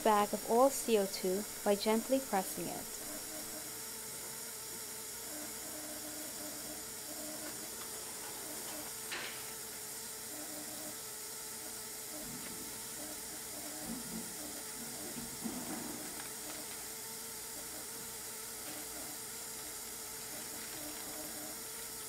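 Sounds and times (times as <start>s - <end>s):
gas hissing from bag: 6.8s - 10.2s, 11.2s - 22.0s
foil bag crinkling: 20.2s - 21.2s.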